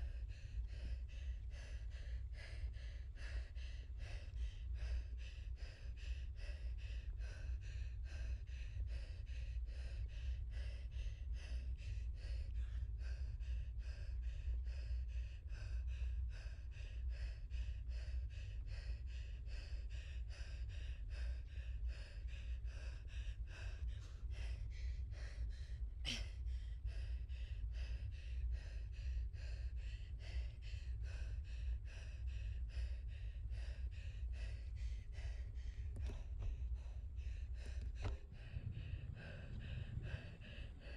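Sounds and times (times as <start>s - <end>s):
wind buffeting microphone: 35.9s - 40.9s.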